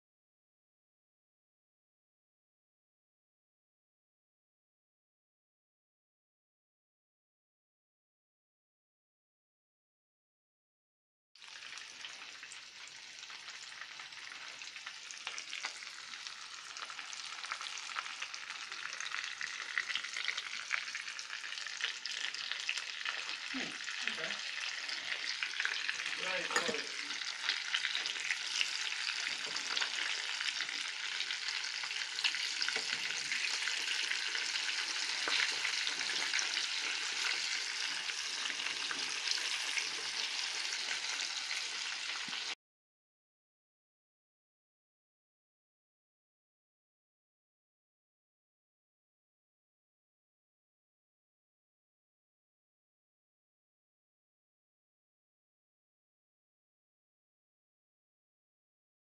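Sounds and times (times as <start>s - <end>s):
chicken sizzling in hot oil: 11.4s - 42.6s.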